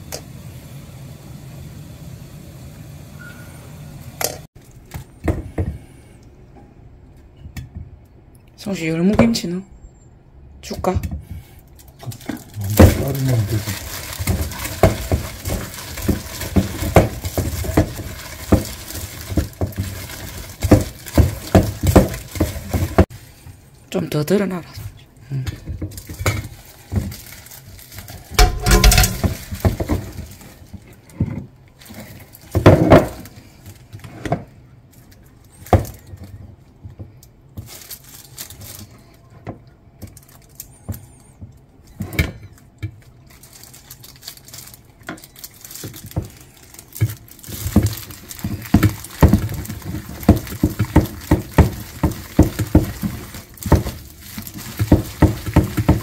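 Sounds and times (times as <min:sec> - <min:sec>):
knocks and clinks in metal bowl: 0:28.4 - 0:29.5.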